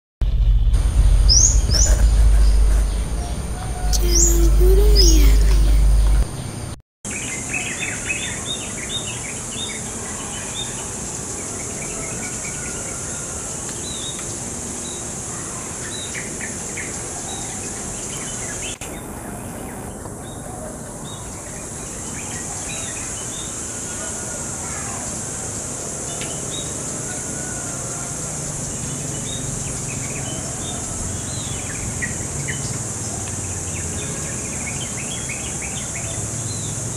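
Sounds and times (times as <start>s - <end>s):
intro sound effect with boom: 0.2s - 6.8s
small birds chirping: 1.3s - 6.6s.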